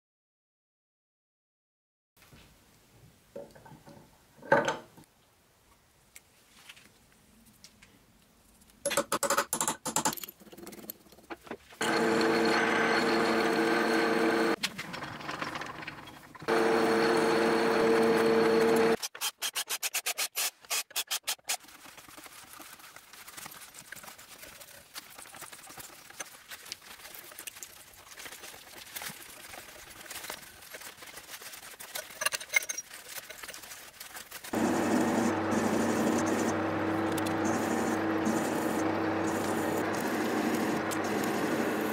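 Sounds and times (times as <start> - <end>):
milling machine drilling metal: 11.8 - 14.6, 16.4 - 19.0, 34.6 - 41.9.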